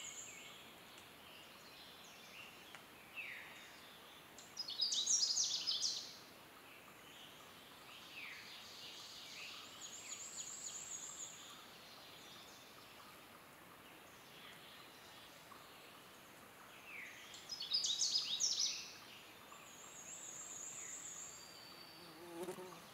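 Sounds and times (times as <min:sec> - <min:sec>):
warbler singing: 0:04.6 - 0:06.2, 0:16.7 - 0:22.0.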